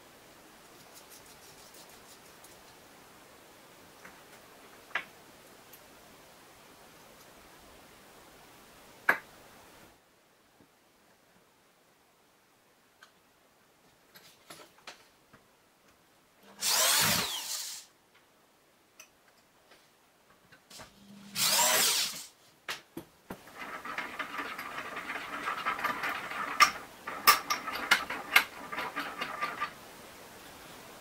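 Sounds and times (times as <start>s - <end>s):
cordless drill whirring: 16.6s - 17.9s, 21.3s - 22.3s
steel screw rasping and clicking: 21.4s - 22.2s, 23.6s - 29.7s.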